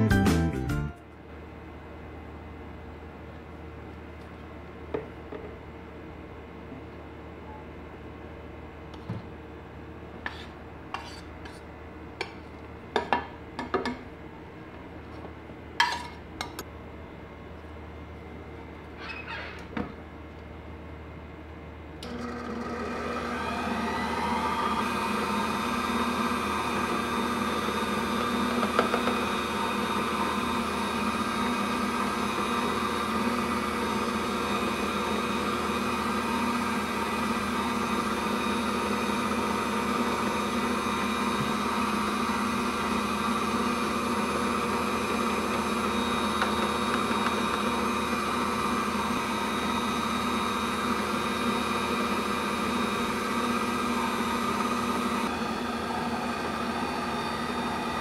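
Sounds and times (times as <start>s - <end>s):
stand mixer motor running: 22.0s - 58.0s.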